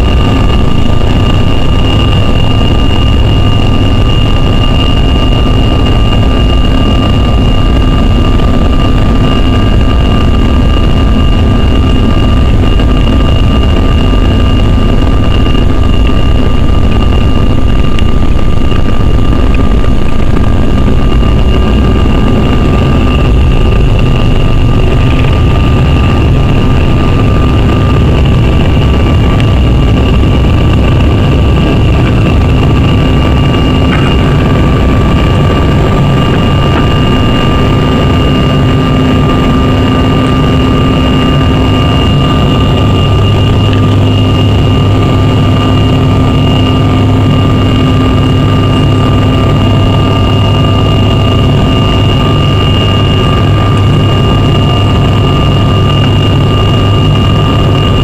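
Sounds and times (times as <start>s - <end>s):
high fan whine: 0.0s - 58.0s
jet engine rumble: 0.0s - 58.0s.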